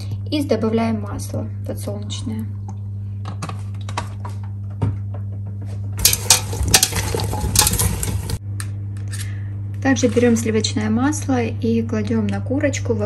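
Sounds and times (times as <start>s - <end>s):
low steady hum: 0.0s - 13.0s
vegetables clattering in metal pot: 6.0s - 8.4s.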